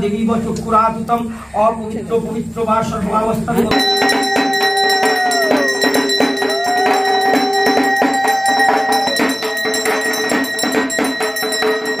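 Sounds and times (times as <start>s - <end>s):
conch shell blown: 3.7s - 12.0s
metal bells ringing: 3.7s - 12.0s.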